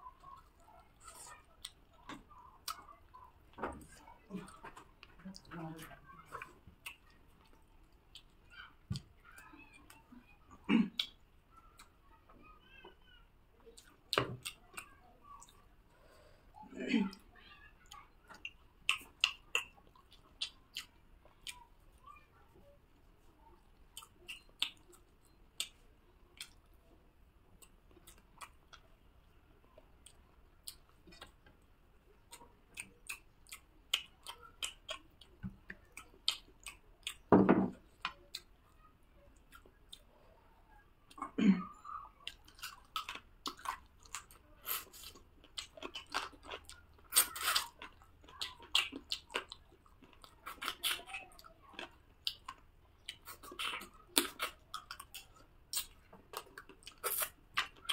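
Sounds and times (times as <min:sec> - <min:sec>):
person chewing with mouth clicks: 0:06.4 - 0:08.3, 0:17.9 - 0:21.7, 0:23.9 - 0:26.7, 0:27.6 - 0:29.0, 0:32.2 - 0:37.3, 0:42.2 - 0:57.9.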